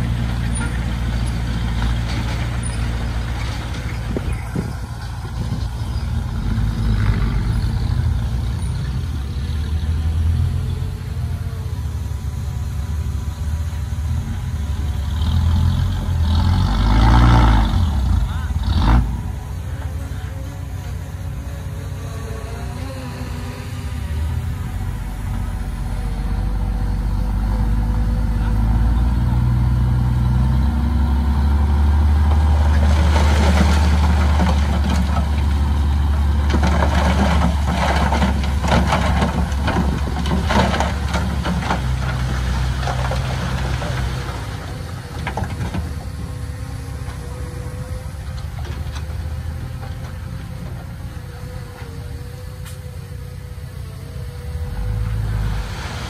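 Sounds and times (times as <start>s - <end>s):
bulldozer diesel engine under load: 0.0s - 56.0s.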